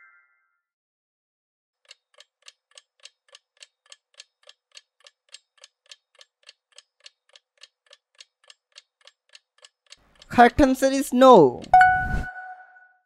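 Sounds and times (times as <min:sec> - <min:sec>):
clock ticking: 0:01.8 - 0:12.2.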